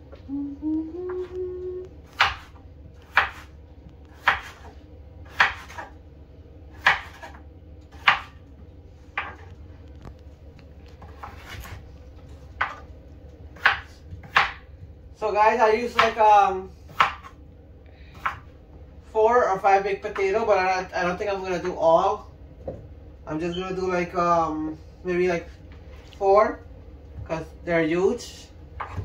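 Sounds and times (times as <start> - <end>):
knife chopping on wooden board: 2.1 - 3.5, 4.1 - 4.7, 5.3 - 5.9, 6.8 - 8.4, 9.2 - 9.4, 12.6 - 12.8, 13.6 - 14.6, 15.9 - 16.2, 16.9 - 17.3.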